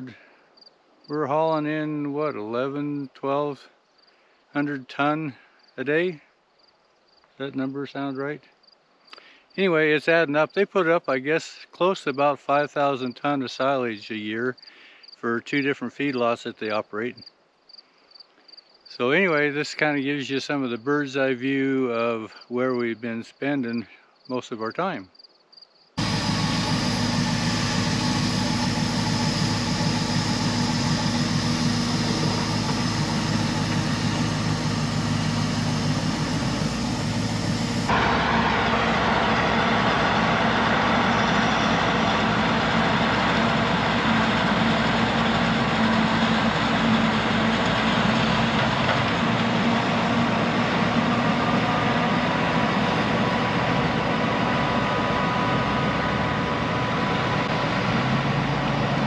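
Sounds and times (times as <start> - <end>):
forage harvester chopping corn: 26.0 - 53.6
truck engines: 26.0 - 59.0.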